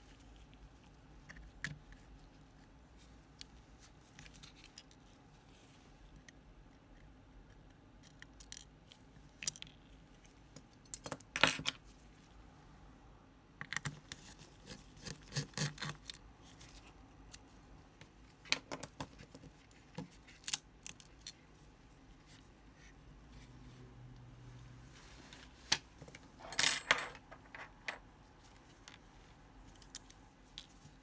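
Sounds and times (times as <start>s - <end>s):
small metal tools clattering: 26.4s - 28.0s.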